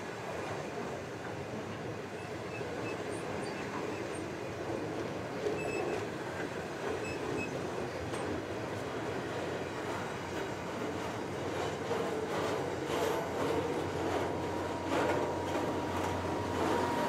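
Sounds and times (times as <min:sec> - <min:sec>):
train wheels rumbling on rail: 0:00.0 - 0:17.0
faint high wheel squeaks: 0:02.1 - 0:04.4, 0:05.4 - 0:06.2, 0:06.8 - 0:08.4.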